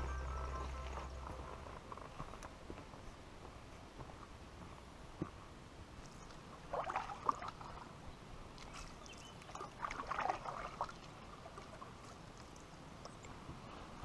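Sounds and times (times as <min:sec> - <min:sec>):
paddle strokes splashing: 0:06.2 - 0:08.0, 0:08.6 - 0:13.0.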